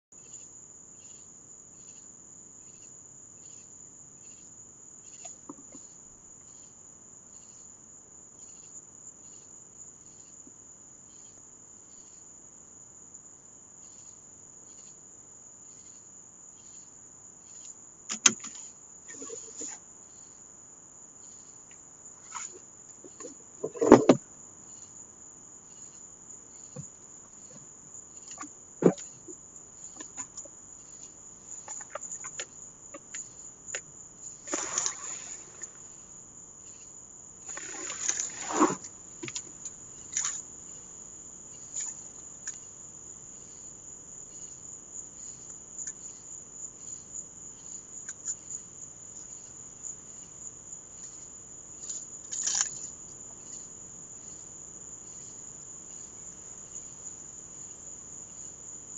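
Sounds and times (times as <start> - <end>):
crickets chirping: 0.1 - 58.9
knocks and rustles: 22.2 - 24.2.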